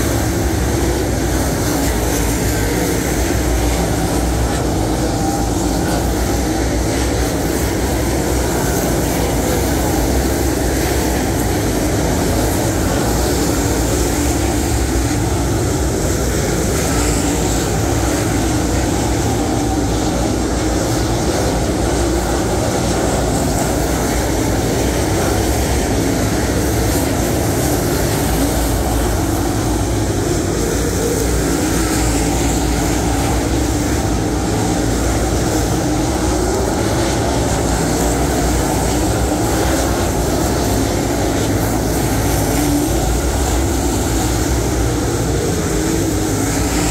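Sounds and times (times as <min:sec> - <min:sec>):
race car engines roaring: 0:00.0 - 0:46.9.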